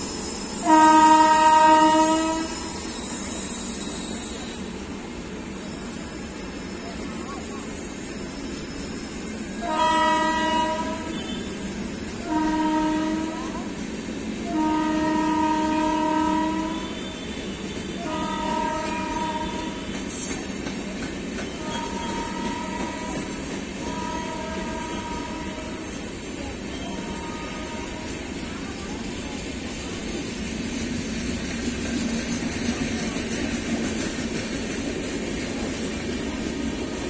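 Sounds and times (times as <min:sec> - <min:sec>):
train coaches rumbling and clattering: 0:00.0 - 0:37.0
locomotive horn blasts: 0:00.6 - 0:02.8, 0:09.6 - 0:13.7, 0:14.5 - 0:20.0, 0:21.5 - 0:26.0, 0:26.7 - 0:28.2.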